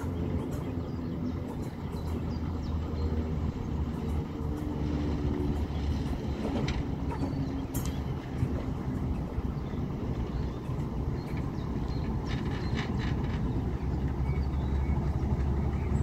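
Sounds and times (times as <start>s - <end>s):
diesel locomotive engine hum: 0.0s - 16.0s.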